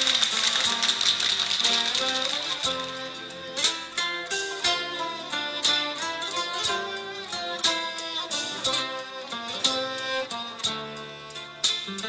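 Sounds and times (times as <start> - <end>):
plucked string music with beat: 0.0 - 12.0.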